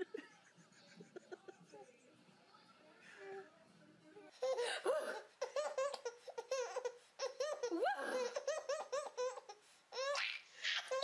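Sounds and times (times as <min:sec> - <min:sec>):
baby laughing: 0:04.4 - 0:11.0.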